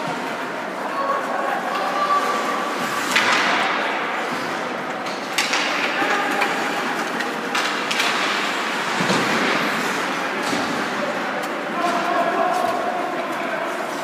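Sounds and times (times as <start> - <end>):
hockey stick hitting puck: 3.0 - 4.0, 5.1 - 9.8.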